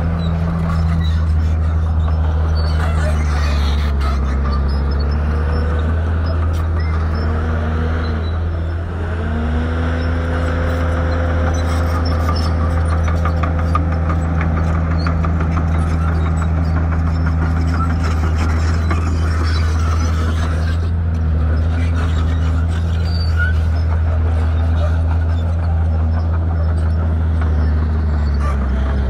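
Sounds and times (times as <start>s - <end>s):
heavy machinery diesel engine: 0.0s - 29.0s.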